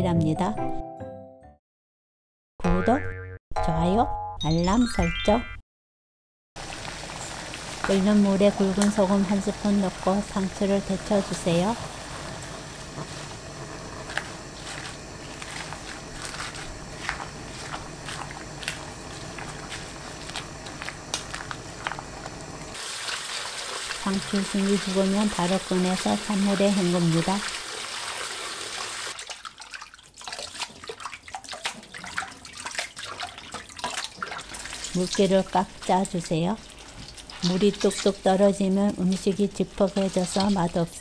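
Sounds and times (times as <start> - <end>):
water boiling with pops: 6.6 - 29.5, 30.6 - 41.0
water splashing in a metal bowl: 22.7 - 41.0.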